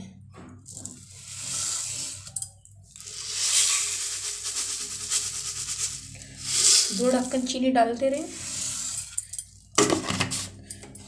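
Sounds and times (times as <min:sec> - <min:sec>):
spatula scraping steel pot: 0:00.8 - 0:04.0, 0:05.8 - 0:09.4.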